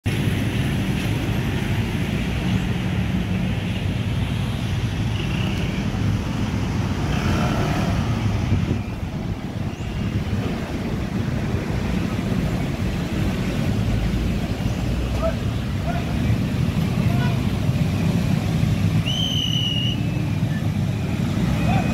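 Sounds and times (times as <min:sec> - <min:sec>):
traffic rumble: 0:00.0 - 0:21.9
wind buffeting microphone: 0:06.0 - 0:19.0.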